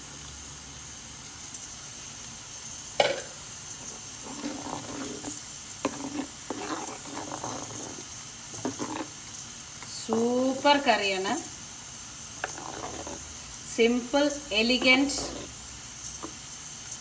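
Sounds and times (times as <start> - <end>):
steady sizzling hiss: 0.0 - 17.0
spoon knocking against clay pot: 3.0 - 3.3
spoon scraping and clattering: 3.9 - 9.1, 12.4 - 13.2.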